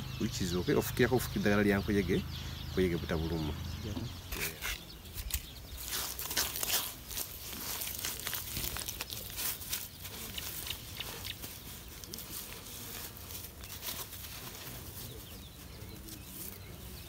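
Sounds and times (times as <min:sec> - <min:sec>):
hands scraping dry soil: 0:04.3 - 0:17.0.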